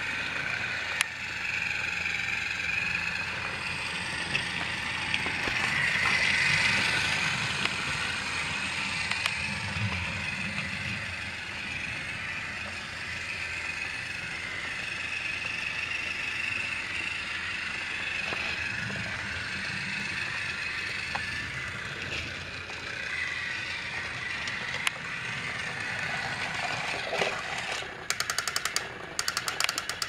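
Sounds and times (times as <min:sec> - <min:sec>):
toy train motor whine: 0:00.0 - 0:30.0
wheels and gears rattling: 0:00.0 - 0:30.0
fast even clicking: 0:28.1 - 0:30.0.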